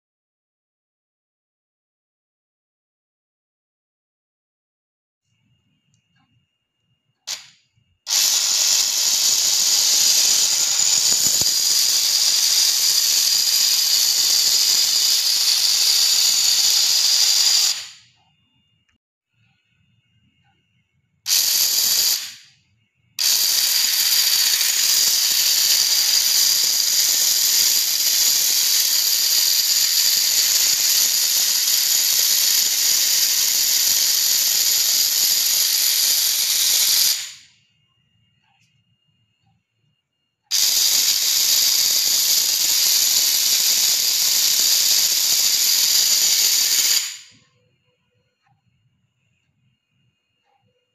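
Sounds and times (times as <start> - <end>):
motor spinning plastic gears: 7.3 - 18.0, 21.3 - 22.4, 23.2 - 37.5, 40.5 - 47.4.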